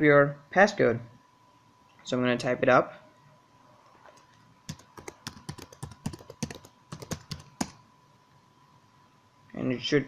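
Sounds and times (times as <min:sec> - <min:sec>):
keyboard typing: 0:04.0 - 0:07.8.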